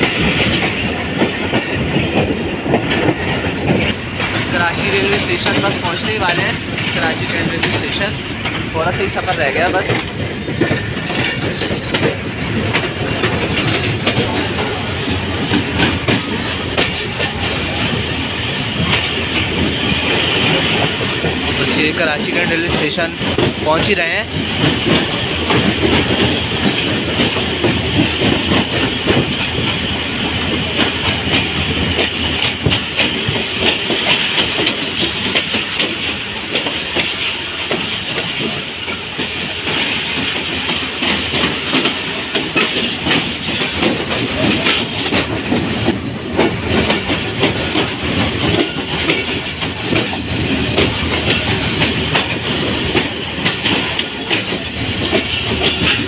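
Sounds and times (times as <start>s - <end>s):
clicking over rail joints: 0.0s - 17.8s, 18.7s - 56.0s
train wheels rumbling on rail: 0.0s - 56.0s
high-pitched hisses: 4.0s - 5.8s.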